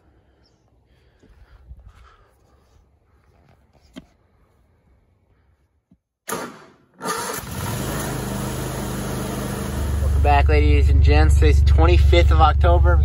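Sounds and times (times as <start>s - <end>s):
riding lawnmower engine starting: 6.3s - 11.6s.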